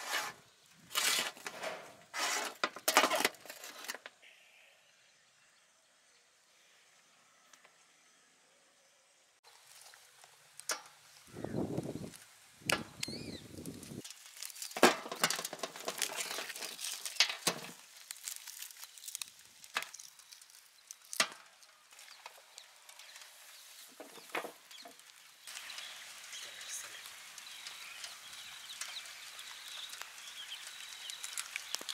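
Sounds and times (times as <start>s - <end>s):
meat crackling and ripping: 13.0s - 23.8s, 28.7s - 31.9s.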